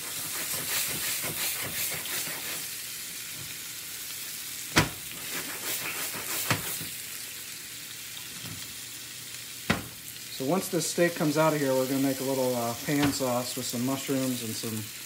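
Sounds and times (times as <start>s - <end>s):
steak sizzling in skillet: 0.0s - 15.0s.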